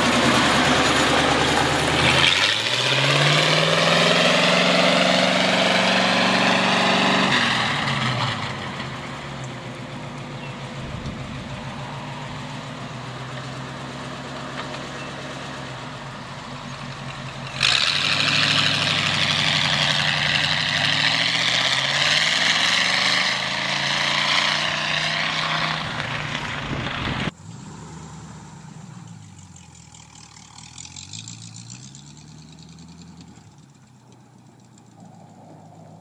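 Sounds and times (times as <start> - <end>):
loud tractor engine running: 0.0 - 27.4
quieter tractor engine revving: 0.0 - 36.0.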